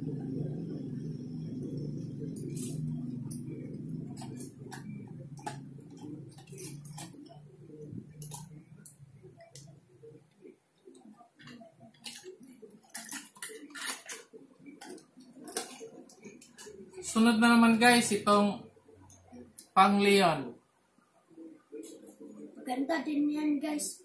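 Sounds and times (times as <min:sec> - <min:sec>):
low hum: 0:00.0 - 0:12.7.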